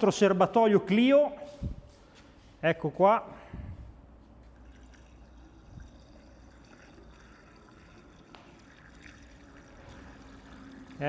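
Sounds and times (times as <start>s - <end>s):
liquid pouring into fuel tank: 4.0s - 11.0s.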